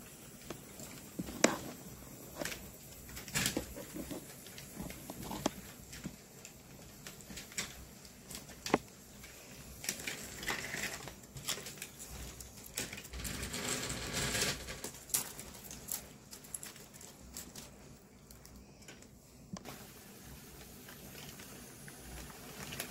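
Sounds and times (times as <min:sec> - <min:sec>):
model train clicks and rattles: 0:00.2 - 0:17.7.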